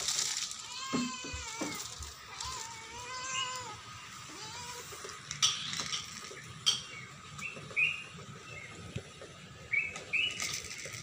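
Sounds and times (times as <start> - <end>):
small bird chirping: 5.4 - 8.9, 9.6 - 11.0.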